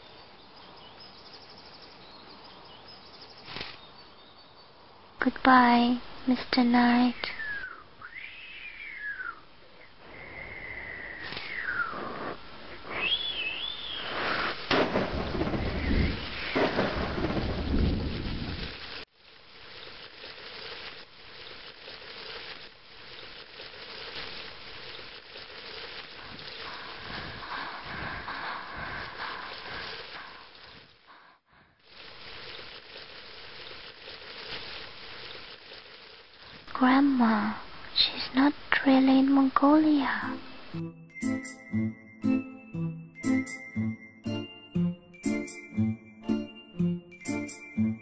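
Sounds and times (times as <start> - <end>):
rain: 0.0 - 42.1, 45.2 - 48.0
gliding whistle-like tones: 10.4 - 12.2, 12.9 - 14.2
thunder rumble: 14.7 - 18.8.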